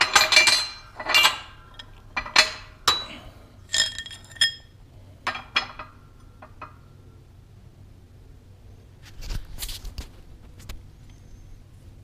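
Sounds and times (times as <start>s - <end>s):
steel parts clinking on metal: 0.0s - 5.9s.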